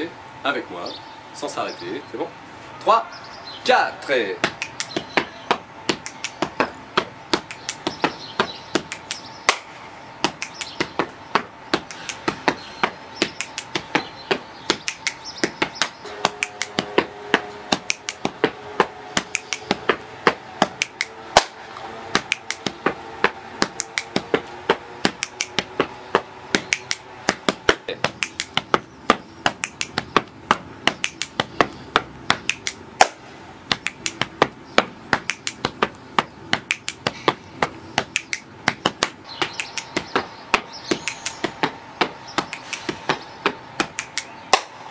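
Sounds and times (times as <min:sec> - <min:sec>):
slaps on the body: 0:04.4 - 0:18.6, 0:19.2 - 0:21.6, 0:22.2 - 0:26.0, 0:26.6 - 0:44.7
hand claps: 0:04.4 - 0:21.6, 0:22.2 - 0:44.7
finger snaps: 0:04.5 - 0:05.1, 0:05.9 - 0:06.5, 0:07.4 - 0:08.0, 0:08.8 - 0:11.0, 0:11.8 - 0:12.4, 0:13.2 - 0:13.9, 0:14.7 - 0:16.8, 0:19.2 - 0:19.8, 0:20.7 - 0:21.1, 0:23.7 - 0:24.2, 0:26.6 - 0:27.4, 0:28.2 - 0:28.7, 0:29.6 - 0:30.1, 0:30.9 - 0:32.8, 0:33.7 - 0:34.3, 0:35.2 - 0:35.7, 0:36.6 - 0:37.2, 0:38.0 - 0:40.2, 0:40.9 - 0:41.5, 0:42.4 - 0:43.2, 0:43.8 - 0:44.6.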